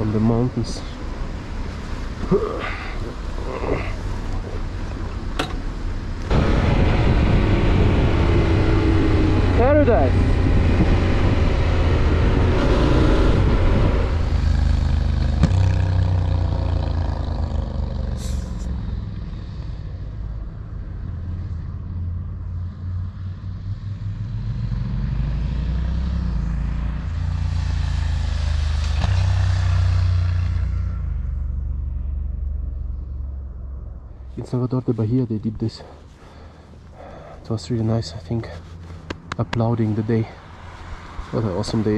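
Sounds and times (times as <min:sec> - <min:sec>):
wind noise: 0:06.2 - 0:14.4.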